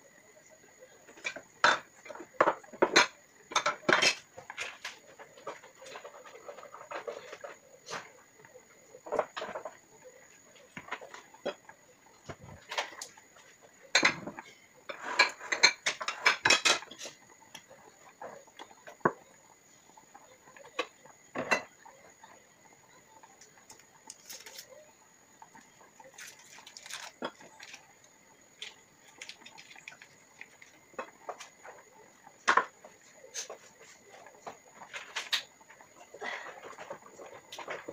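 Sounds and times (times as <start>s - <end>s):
kitchenware clinking and knocking: 1.1s - 7.5s, 10.7s - 17.2s, 20.7s - 21.9s, 28.6s - 32.8s.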